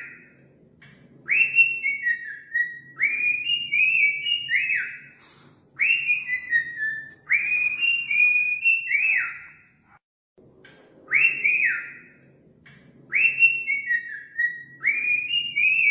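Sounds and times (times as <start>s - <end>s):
cockatiel whistling: 1.3s - 5.1s, 5.8s - 9.7s, 13.1s - 15.9s.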